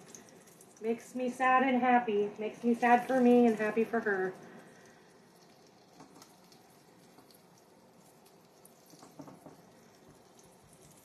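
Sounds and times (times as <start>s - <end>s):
oil popping: 0.0s - 1.0s, 2.4s - 11.0s
frying in hot oil crackling: 0.0s - 11.0s.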